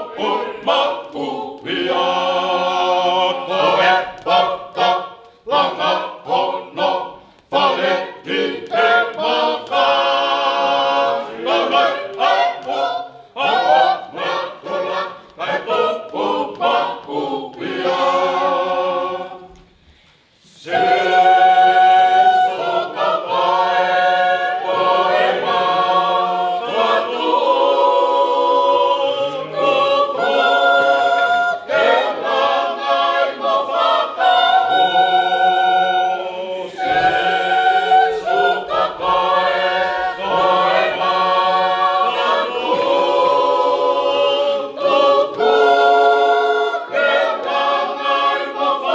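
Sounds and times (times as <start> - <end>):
choir singing a hymn a cappella: 0.0 - 48.9.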